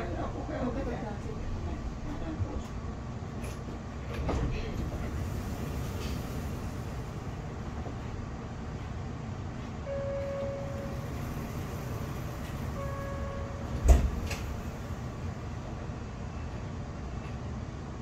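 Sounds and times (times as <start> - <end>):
tram interior hum: 0.0 - 18.0.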